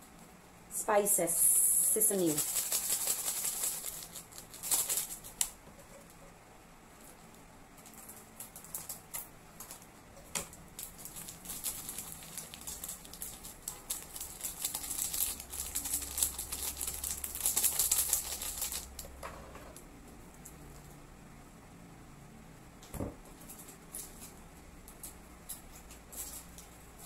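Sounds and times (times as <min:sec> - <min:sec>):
foil sachet crinkling and tearing: 0:02.1 - 0:05.6, 0:10.8 - 0:19.0.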